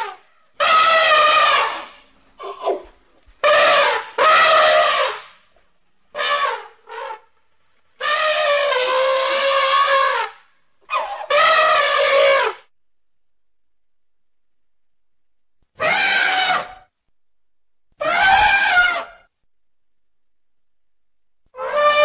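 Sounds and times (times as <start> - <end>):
elephant calf trumpeting: 8.0 - 12.6, 15.8 - 16.8, 18.0 - 19.2, 21.6 - 22.0.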